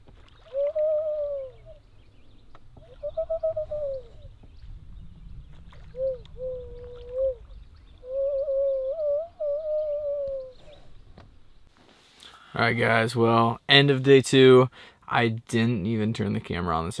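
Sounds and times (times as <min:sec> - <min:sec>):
loon wailing calls: 0:00.4 - 0:01.9, 0:02.8 - 0:04.2, 0:05.9 - 0:10.6.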